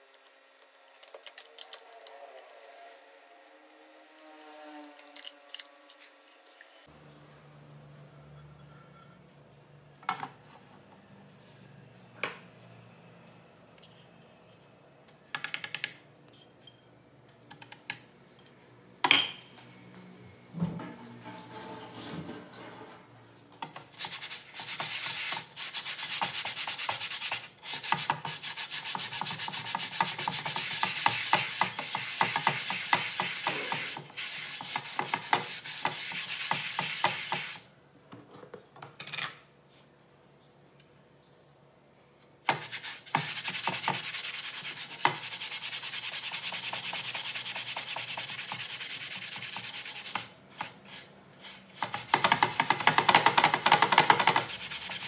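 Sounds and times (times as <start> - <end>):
sponge scrubbing a frying pan: 23.9 - 37.6, 42.5 - 55.0.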